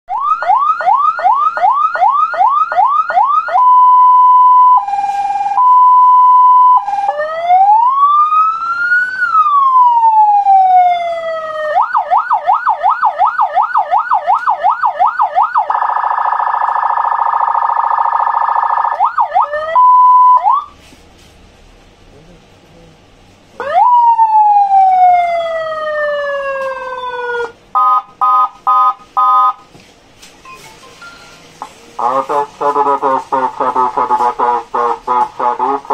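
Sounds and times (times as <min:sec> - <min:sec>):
electronic siren: 0:00.1 - 0:20.8, 0:23.6 - 0:29.6.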